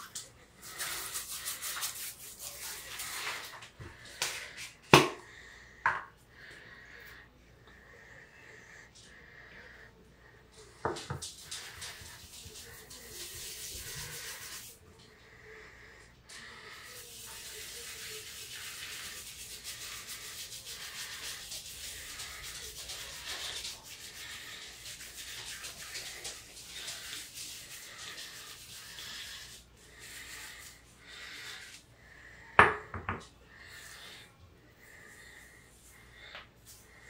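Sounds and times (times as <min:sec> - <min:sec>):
hands rubbing foam into beard: 0:00.0 - 0:04.8, 0:11.0 - 0:14.8, 0:16.6 - 0:31.9.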